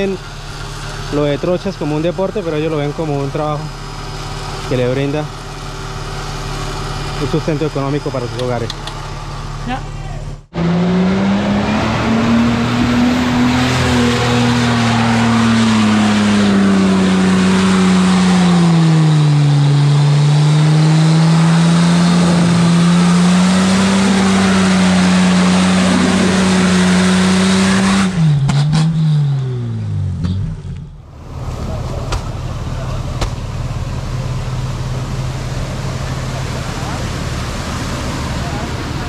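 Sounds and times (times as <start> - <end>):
truck engine at high revs: 0.0 - 39.0
tyres hissing through mud: 21.1 - 27.9.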